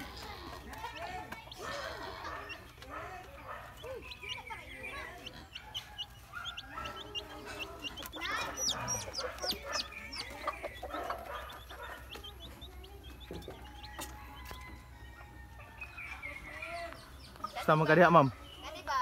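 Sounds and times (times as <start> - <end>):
low clucking: 0.0 - 14.6
chicks peeping: 0.0 - 19.0.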